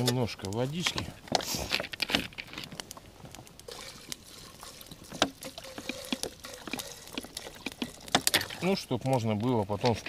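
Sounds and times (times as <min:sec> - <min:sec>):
water trickling into a pot: 0:03.6 - 0:10.0.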